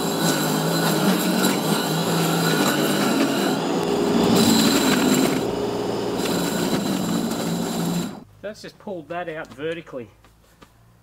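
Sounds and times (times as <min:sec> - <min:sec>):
scarifier motor hum with whine: 0:00.0 - 0:08.2.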